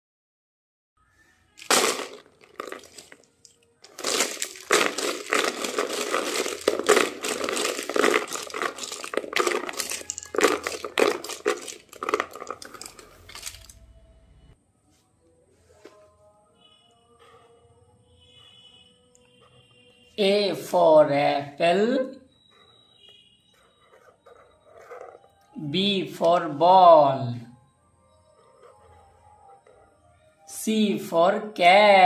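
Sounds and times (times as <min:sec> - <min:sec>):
plastic marker pens clattering: 0:01.6 - 0:13.8.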